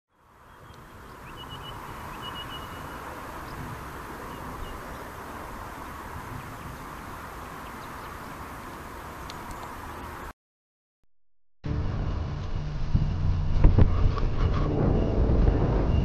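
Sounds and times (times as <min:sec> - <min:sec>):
low rumble: 0:11.6 - 0:16.0.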